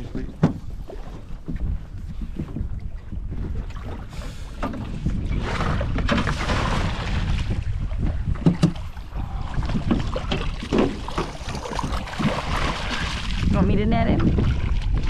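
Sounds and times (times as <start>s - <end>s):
wind rumble on microphone: 0.0s - 15.0s
fish splashing in water: 5.4s - 7.6s, 8.8s - 13.5s.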